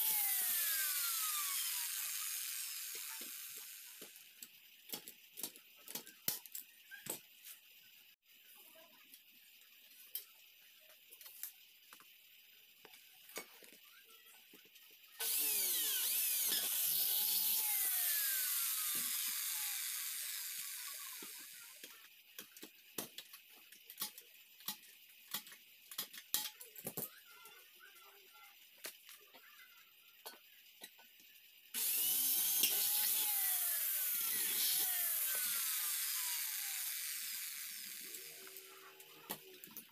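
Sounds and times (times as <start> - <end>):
power tool motor running: 0.0 - 4.2, 15.2 - 21.9, 31.8 - 39.0.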